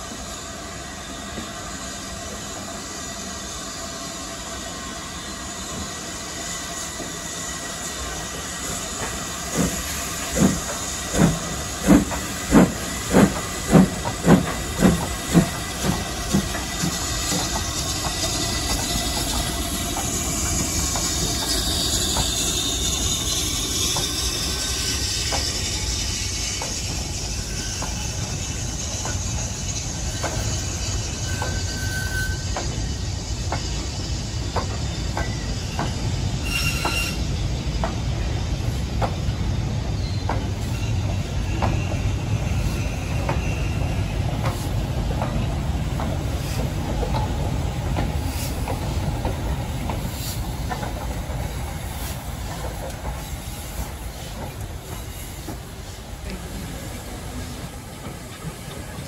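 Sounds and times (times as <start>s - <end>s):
steam hissing: 0.0s - 59.0s
steam locomotive exhaust chuffs: 0.0s - 59.0s.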